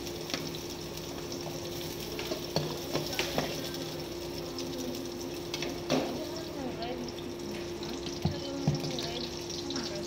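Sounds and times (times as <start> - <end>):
utensil clicking against pan: 2.2 - 4.8.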